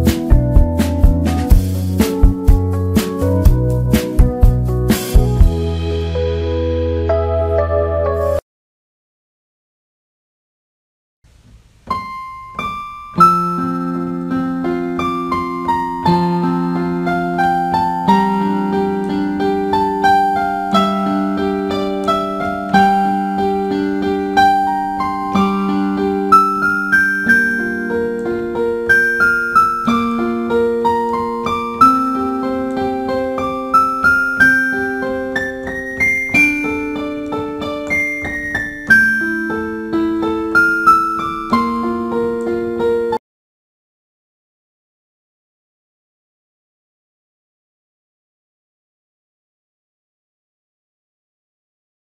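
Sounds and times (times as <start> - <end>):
slow electric piano melody: 0.0 - 8.4, 11.9 - 43.2.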